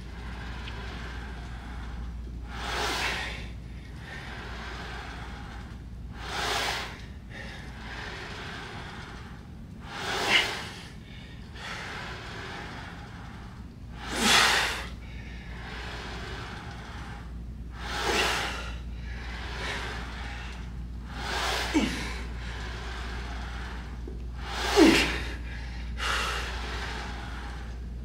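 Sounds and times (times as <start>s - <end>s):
low steady hum: 0.0s - 28.0s
man breathing hard: 0.0s - 28.0s.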